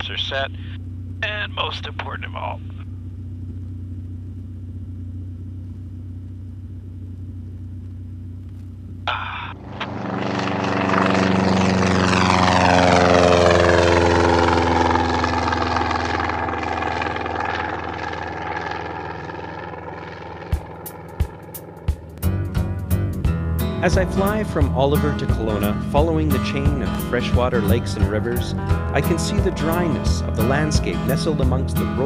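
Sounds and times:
cockpit engine drone: 0:00.0 - 0:32.0
propeller plane passing: 0:00.0 - 0:32.0.

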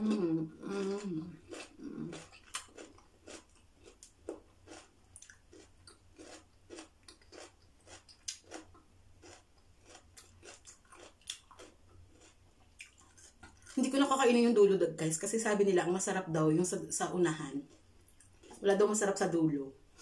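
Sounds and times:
person chewing cucumber: 0:00.0 - 0:13.8, 0:17.5 - 0:18.6.

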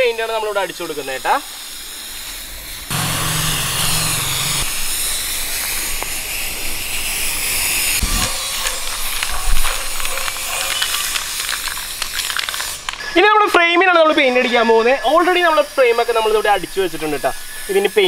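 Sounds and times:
spray paint can hissing: 0:08.8 - 0:13.0.

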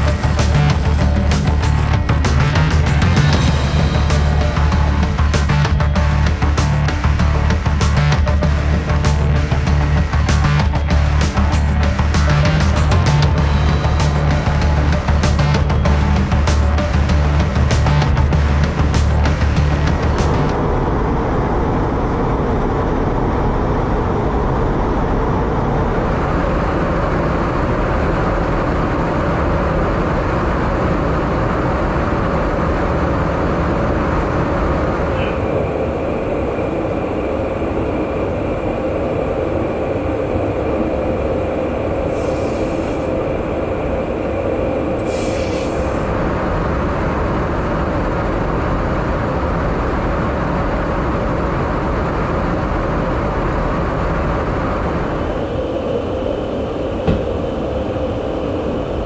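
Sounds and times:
aircraft engine roar: 0:00.0 - 0:59.0
thin steady whine: 0:18.3 - 0:59.0
brief hisses: 0:45.0 - 0:46.1.

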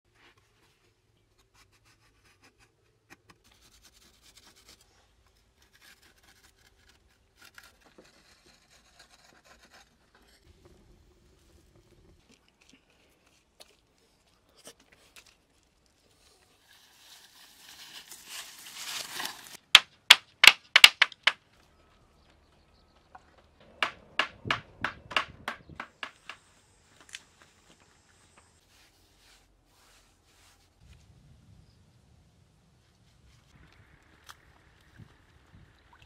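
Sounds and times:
rustle or scrape: 0:14.2 - 0:19.6, 0:27.0 - 0:31.5
sharp knocks: 0:23.6 - 0:26.4.

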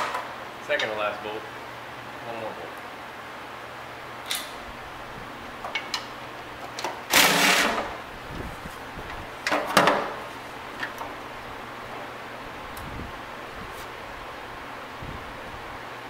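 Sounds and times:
tool and bolt clicks: 0:05.6 - 0:07.8.

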